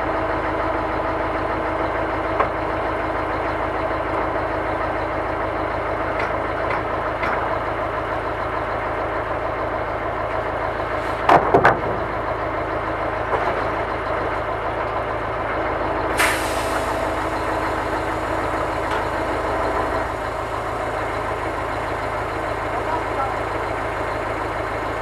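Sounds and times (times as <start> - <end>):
diesel engine idling: 0.0 - 25.0
crane hydraulics working: 16.0 - 25.0.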